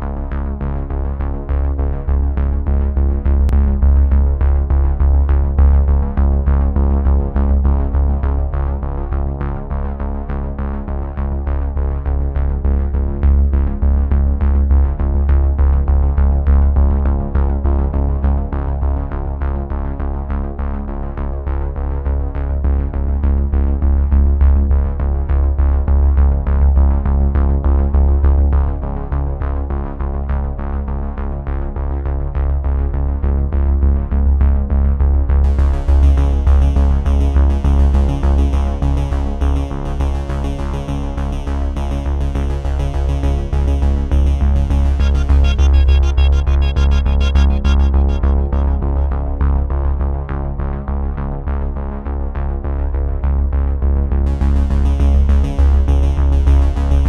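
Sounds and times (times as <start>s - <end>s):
instrumental background music: 44.7s - 49.6s.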